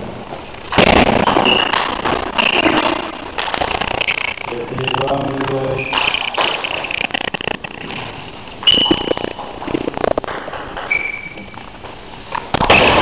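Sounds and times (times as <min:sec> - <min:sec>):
short high squeaks: 0:01.3 - 0:02.9, 0:05.6 - 0:07.8, 0:08.6 - 0:09.5, 0:10.9 - 0:11.7.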